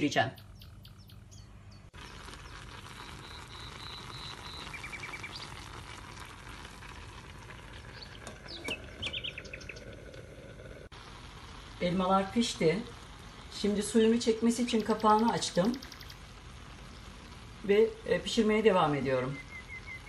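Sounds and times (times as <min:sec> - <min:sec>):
birds chirping: 0:00.0 - 0:05.8, 0:07.7 - 0:12.1, 0:13.1 - 0:17.2, 0:17.8 - 0:20.0
syrup bubbling in a pot: 0:01.9 - 0:20.0.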